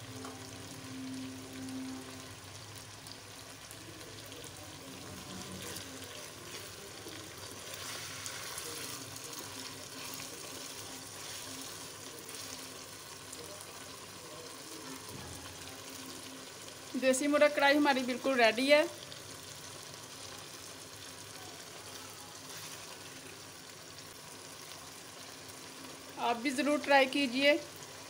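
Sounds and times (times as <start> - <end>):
gravy sizzling in oil: 0.0 - 28.0
food being stirred: 4.7 - 14.9, 22.3 - 23.6.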